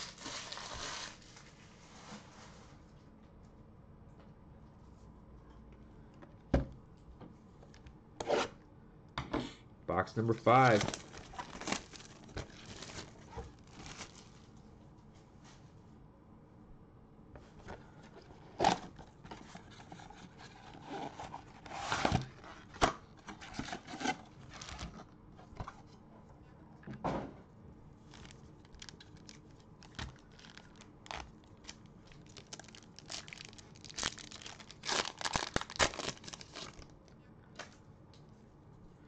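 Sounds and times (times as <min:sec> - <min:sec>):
plastic wrap crinkling and ripping: 0:00.0 - 0:01.6, 0:10.3 - 0:14.5, 0:23.4 - 0:25.0, 0:28.0 - 0:36.9.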